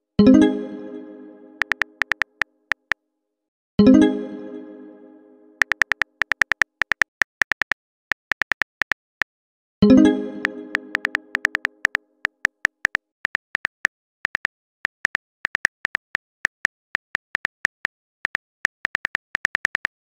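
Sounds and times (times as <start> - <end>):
phone keyboard tap clicks: 1.6 - 3.0, 5.6 - 9.0, 10.9 - 20.0.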